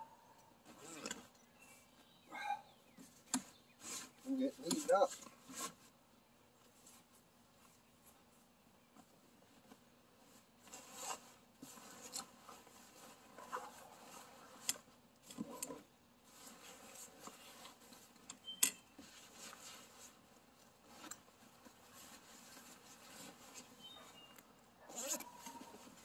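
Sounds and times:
fabric rustling and rubbing: 6.6 - 15.0, 16.2 - 18.2, 18.9 - 26.0.

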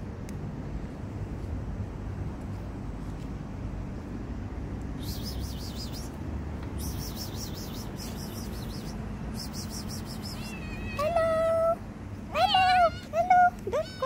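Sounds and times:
rapid wavering chirping: 5.0 - 6.1, 6.8 - 10.5
cat meowing: 10.0 - 14.0.

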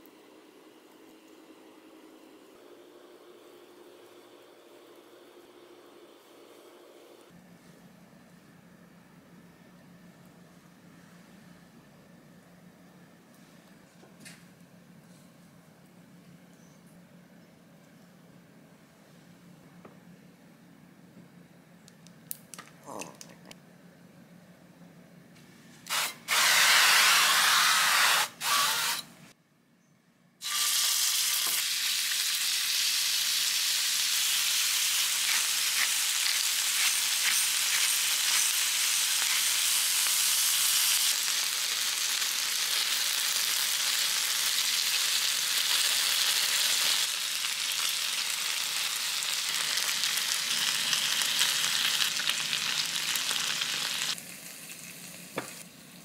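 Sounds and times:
cooking oil spray hissing: 25.9 - 29.0, 30.4 - 56.0
meat sizzling in a pan: 30.4 - 55.6.

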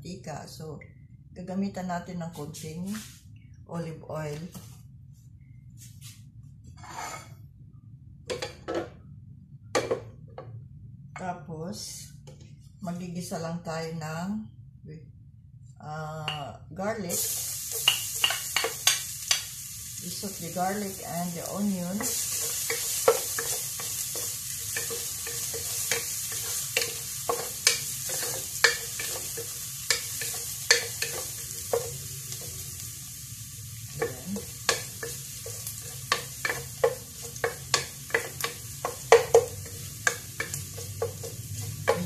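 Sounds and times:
garlic sizzling in oil: 17.0 - 42.0.

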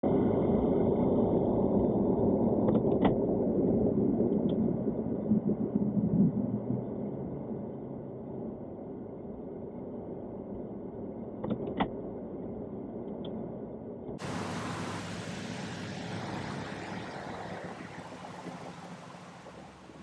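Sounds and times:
steady outdoor hiss: 14.2 - 20.0.

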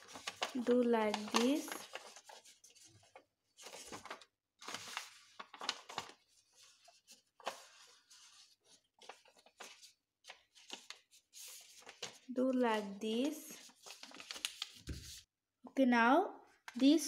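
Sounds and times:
paper rustling and crinkling: 0.0 - 15.3.

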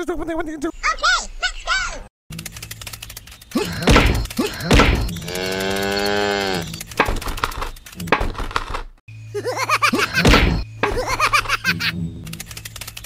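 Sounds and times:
cow mooing: 5.2 - 6.8.

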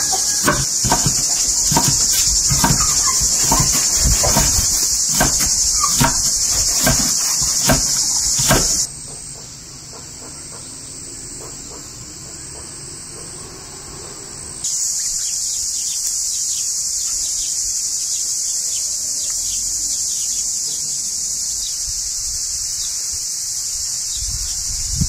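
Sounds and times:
knife chopping on wooden board: 0.0 - 8.9
high-pitched insect chorus: 0.0 - 25.0.

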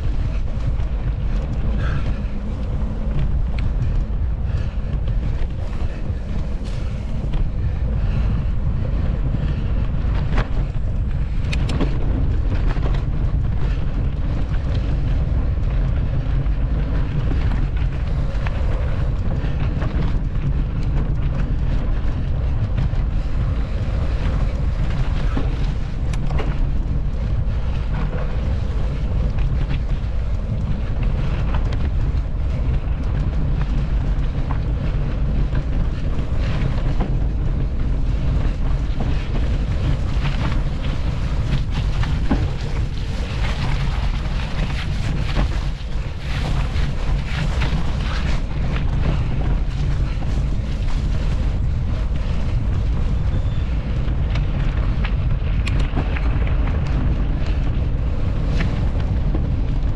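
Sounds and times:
bike clicks and rattles: 0.0 - 59.9
wind rumble on microphone: 0.0 - 59.9.

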